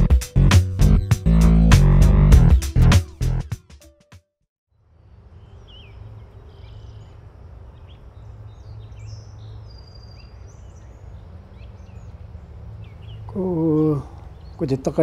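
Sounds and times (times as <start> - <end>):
small birds chirping: 4.7 - 15.0.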